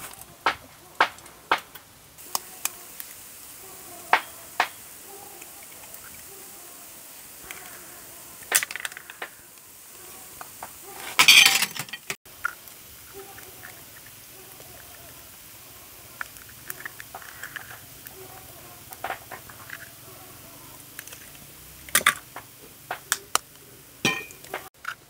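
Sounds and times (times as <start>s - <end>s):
glass bowls and spoon clinking: 11.2s - 12.2s, 24.0s - 24.6s.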